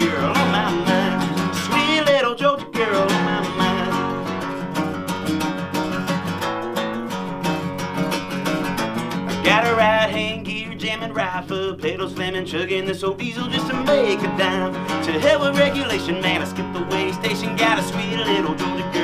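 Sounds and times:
man singing: 0.0 - 4.9, 9.3 - 19.0
acoustic guitar strumming: 0.0 - 19.0.

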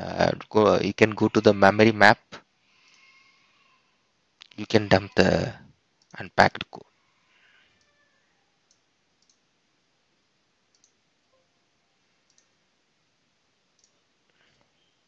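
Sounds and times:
faint computer mouse clicks: 8.7 - 9.4, 10.7 - 11.0, 12.2 - 12.5, 13.8 - 14.4.

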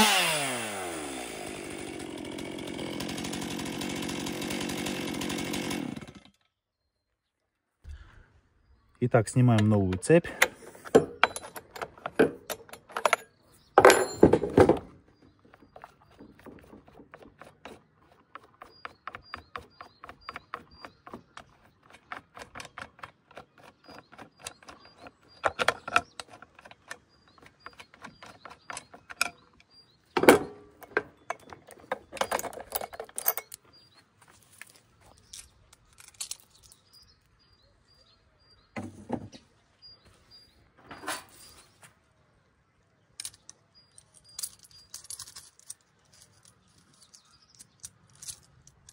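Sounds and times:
metal clicks and clinks: 10.4 - 14.5, 30.4 - 33.7, 43.2 - 48.9.

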